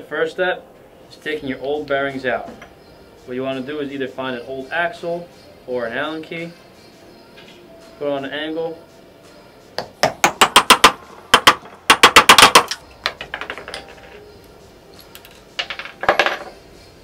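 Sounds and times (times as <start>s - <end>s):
hammer tapping metal: 9.8s - 14.2s.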